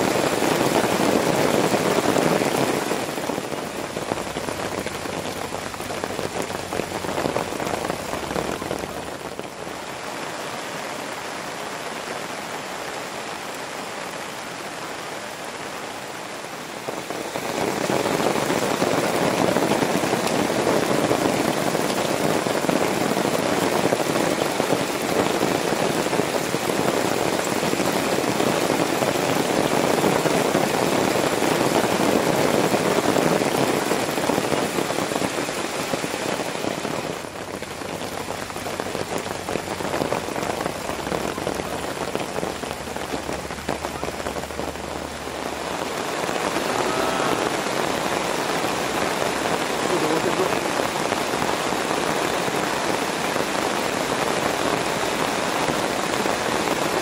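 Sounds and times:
rain on a tarp: 0:00.0 - 0:57.0.

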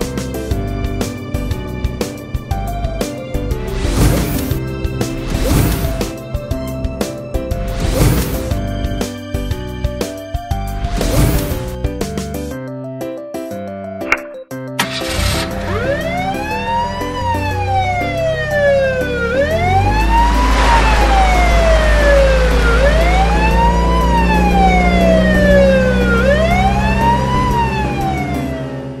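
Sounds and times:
police siren wailing: 0:15.0 - 0:29.0
low rumble: 0:19.4 - 0:26.8
rushing hiss: 0:20.3 - 0:23.4.

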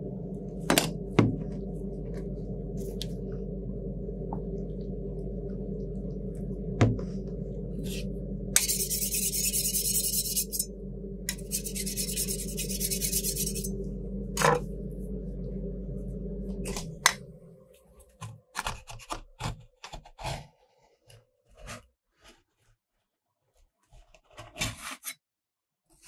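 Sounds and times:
cooling unit hum: 0:00.0 - 0:19.2.

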